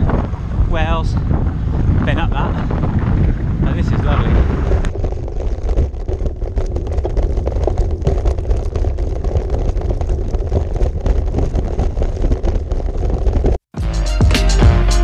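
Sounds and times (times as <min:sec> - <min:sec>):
bicycle tyres on wooden bridge: 0:00.0 - 0:13.7.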